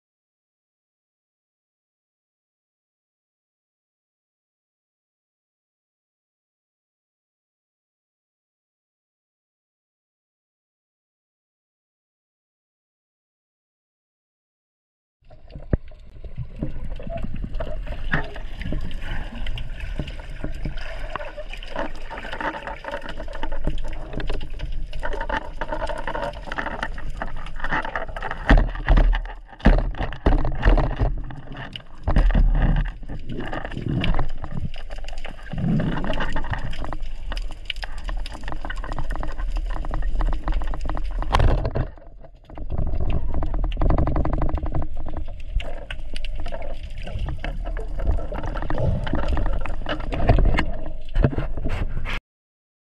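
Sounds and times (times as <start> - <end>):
dense crackling clicks: 15.3 - 51.9.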